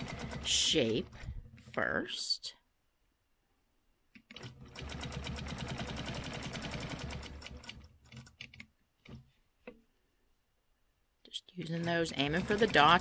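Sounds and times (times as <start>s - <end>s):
quilting machine stitching: 0.0s - 1.8s, 4.2s - 8.4s, 11.6s - 13.0s.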